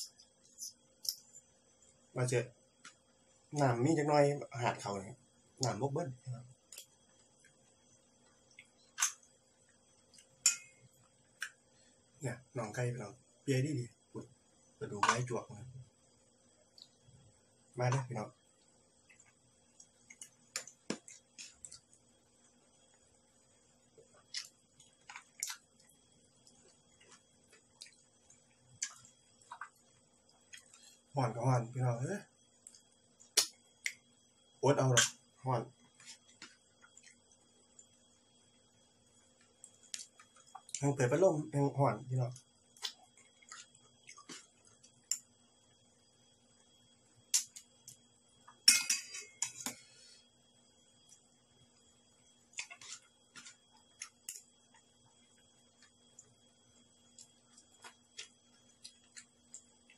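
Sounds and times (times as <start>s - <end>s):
person chewing food: 19.1s - 22.1s, 24.0s - 31.1s, 42.7s - 45.3s, 52.4s - 56.4s, 57.0s - 59.9s
metal spoon clinking against dishes: 48.7s - 49.7s.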